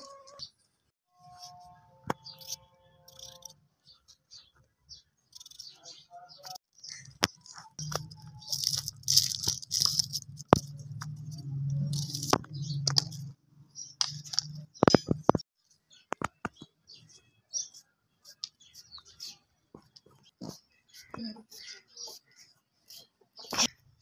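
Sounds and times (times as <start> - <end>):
onion skins crackling: 6.9 - 13.3.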